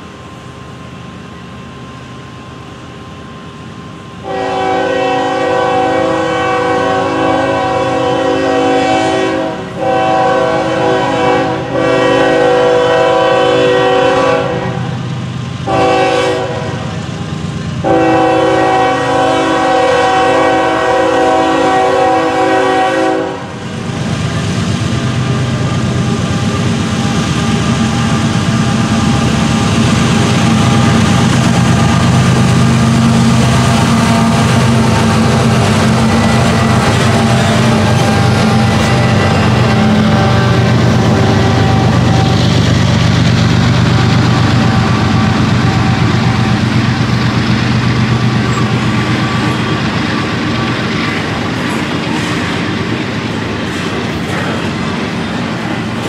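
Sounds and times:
diesel locomotive drone: 0.0s - 56.0s
train air horn blasts: 4.2s - 15.0s, 15.7s - 17.0s, 17.8s - 23.6s, 32.9s - 42.6s, 44.0s - 46.7s.

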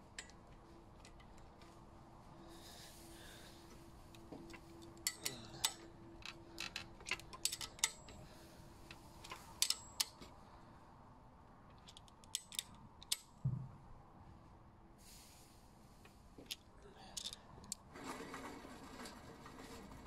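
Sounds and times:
wrench clicking on metal bolt: 4.8s - 8.2s, 9.3s - 10.2s, 11.8s - 13.3s.

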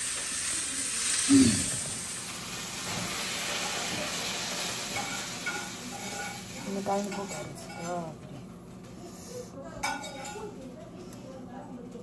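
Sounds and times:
steady hiss: 0.0s - 5.4s.

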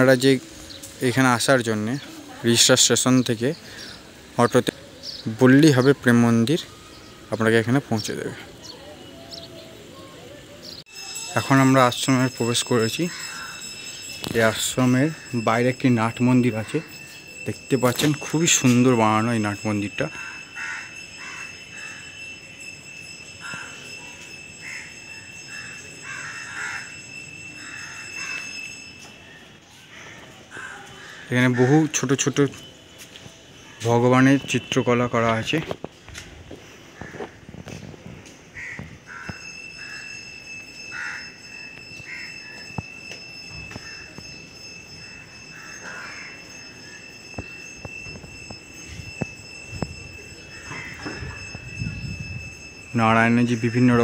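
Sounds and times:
crows cawing: 13.0s - 14.0s, 20.1s - 22.2s, 23.4s - 28.7s, 29.3s - 32.0s, 36.9s - 37.5s, 38.6s - 40.2s, 40.9s - 41.4s, 42.0s - 42.8s, 43.7s - 44.3s, 45.0s - 47.5s, 50.4s - 51.5s
high-pitched whine: 39.2s - 54.0s.

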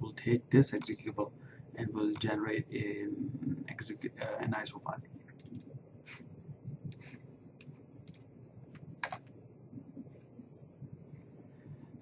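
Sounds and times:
mouse and keyboard clicks: 0.7s - 1.0s, 5.4s - 5.7s.

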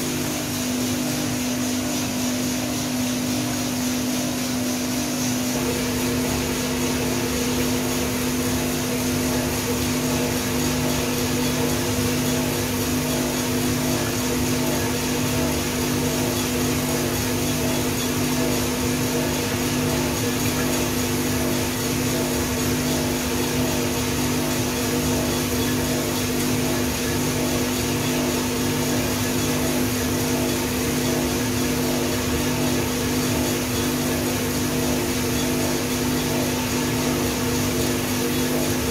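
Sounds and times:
fan air rushing: 0.0s - 38.9s
roaster motor hum: 0.0s - 38.9s.

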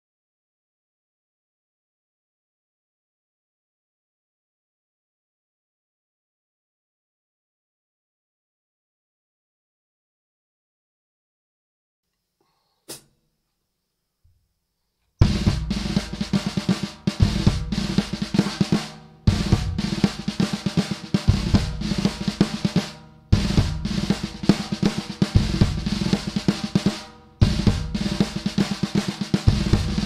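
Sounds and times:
drum kit playing fast rolls: 15.2s - 30.0s.

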